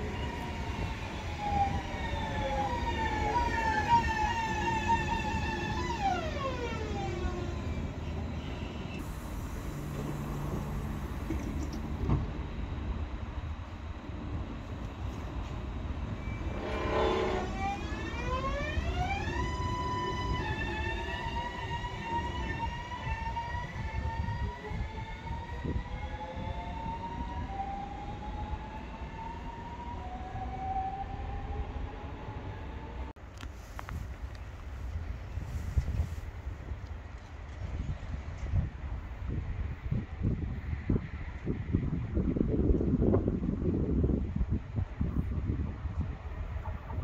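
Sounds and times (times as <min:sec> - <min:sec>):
train motor whine falling: 0:00.0 - 0:12.9, 0:14.8 - 0:25.0
train rumble: 0:00.0 - 0:47.0.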